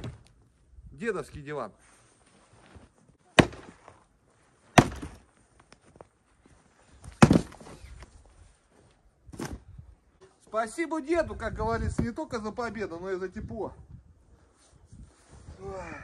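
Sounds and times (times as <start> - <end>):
loud cracking strikes on wood: 3.4 - 4.0, 4.7 - 5.2, 7.1 - 7.8.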